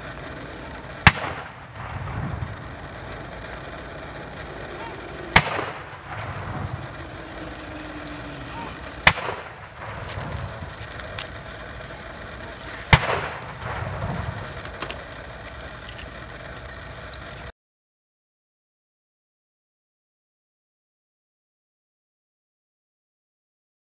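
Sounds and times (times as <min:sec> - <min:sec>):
rifle volley crack with echo: 0:00.0 - 0:15.3.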